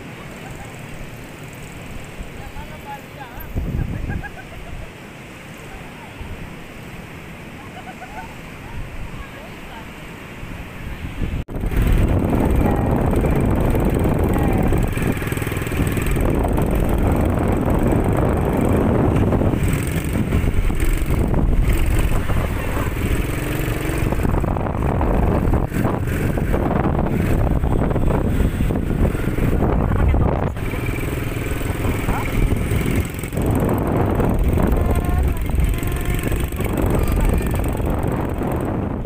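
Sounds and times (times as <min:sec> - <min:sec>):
quad bike engine running: 0:11.5 - 0:39.0.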